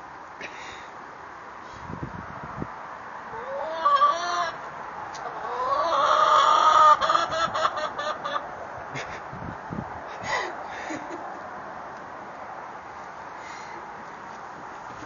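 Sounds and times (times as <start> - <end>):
hen clucking: 3.3 - 8.5.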